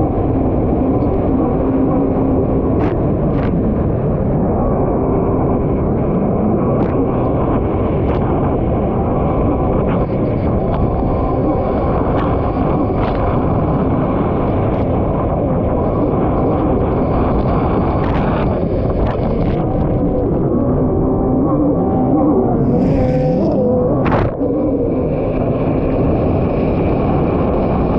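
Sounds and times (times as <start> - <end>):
water and wind rushing: 0.0 - 27.9.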